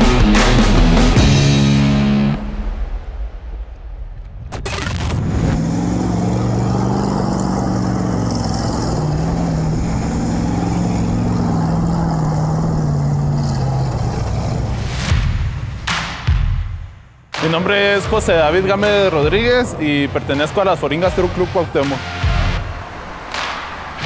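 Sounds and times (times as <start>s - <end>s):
truck engine revving: 4.7s - 16.2s, 17.5s - 24.0s.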